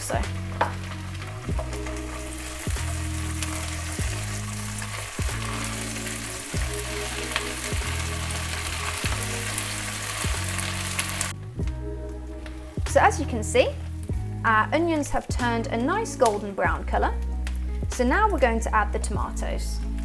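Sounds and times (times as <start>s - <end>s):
onions sizzling in hot oil: 0.0s - 11.4s
soft background music: 0.0s - 20.0s.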